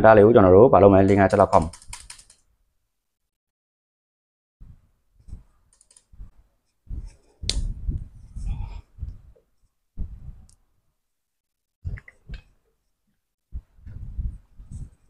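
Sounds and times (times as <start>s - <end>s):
laptop key clicks: 1.5s - 2.4s.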